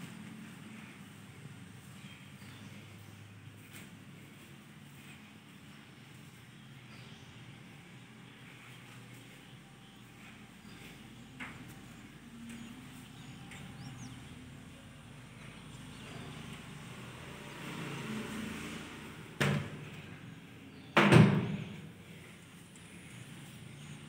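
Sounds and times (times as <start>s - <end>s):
door banging with rattle: 21.0s - 21.7s.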